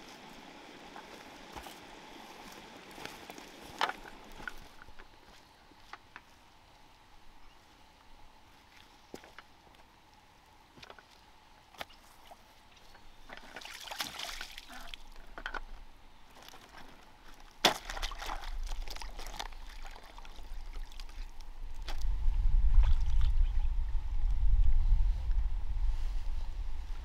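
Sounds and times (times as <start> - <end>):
water sloshing and splashing: 13.3 - 15.1, 16.4 - 22.0
wind rumble on microphone: 20.4 - 27.0.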